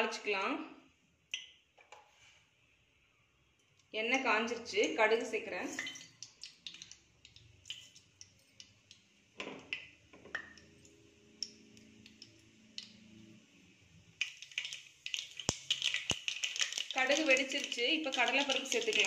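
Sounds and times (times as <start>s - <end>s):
seeds popping in hot oil: 5.7s - 13.4s, 14.0s - 19.0s.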